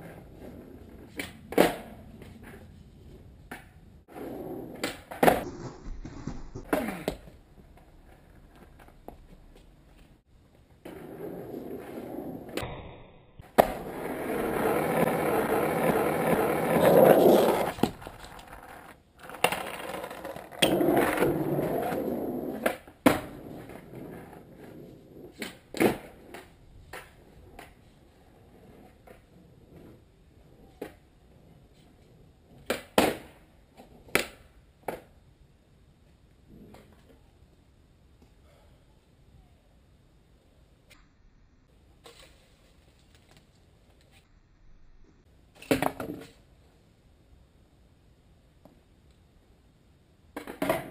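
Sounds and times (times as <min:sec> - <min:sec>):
skateboard clacking on ground: 0:00.0 - 0:02.7, 0:13.6 - 0:27.8, 0:50.4 - 0:50.9
skateboard wheels rolling on asphalt: 0:00.0 - 0:12.6, 0:13.4 - 0:37.8, 0:50.2 - 0:50.9.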